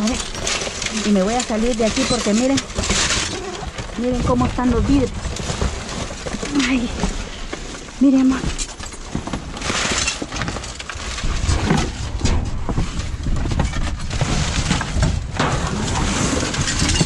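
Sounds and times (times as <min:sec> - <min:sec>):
glass and debris clinking: 0:00.0 - 0:06.9, 0:08.1 - 0:11.5, 0:15.4 - 0:17.0
cardboard boxes rustling and scraping: 0:00.0 - 0:17.0.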